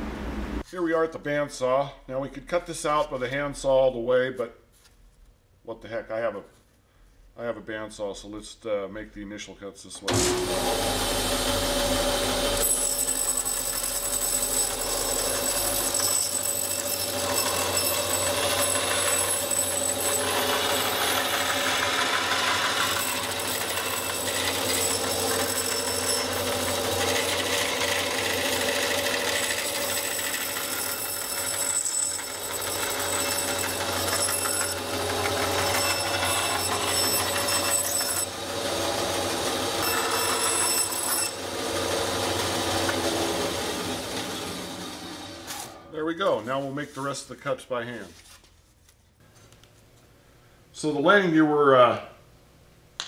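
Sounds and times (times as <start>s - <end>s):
bandsaw motor hum with whine: 10.1s - 45.8s
saw blade cutting foam board: 10.1s - 45.8s.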